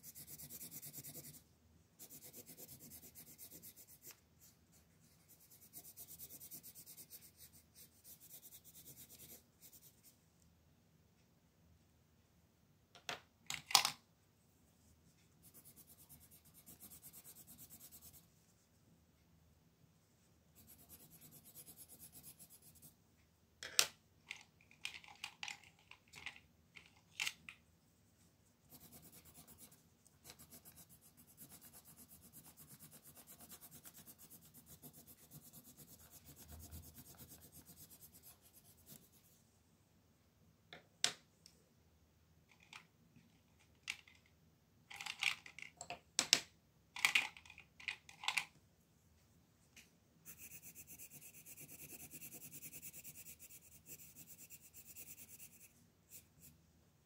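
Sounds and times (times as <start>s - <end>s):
scratching on paper: 0.0s - 1.4s, 2.0s - 10.2s, 15.4s - 18.3s, 20.6s - 23.0s, 28.7s - 39.3s, 50.3s - 56.6s.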